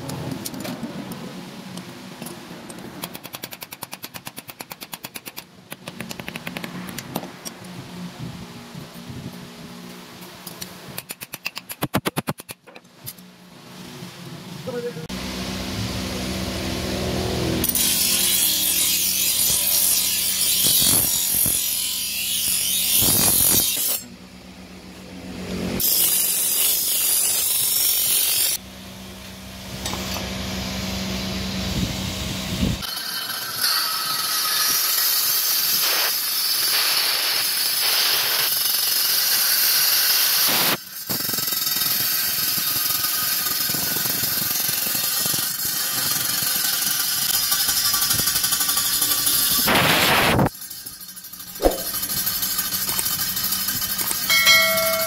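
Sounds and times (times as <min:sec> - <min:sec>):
blade grinding on a wheel: 0:16.9 - 0:24.2, 0:25.4 - 0:28.6, 0:32.6 - 0:55.0
belt-driven grinding wheel: 0:40.8 - 0:55.0.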